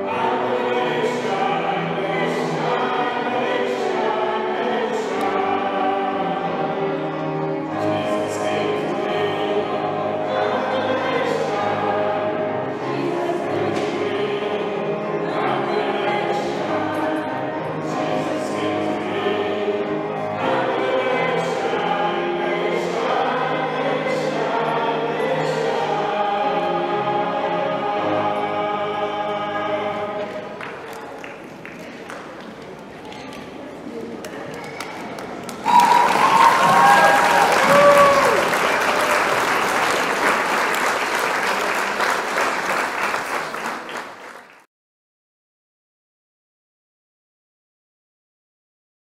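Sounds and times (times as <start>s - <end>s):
choir and congregation singing a hymn: 0.0s - 30.7s, 36.0s - 42.3s
crowd applauding: 30.5s - 32.8s, 34.4s - 44.7s.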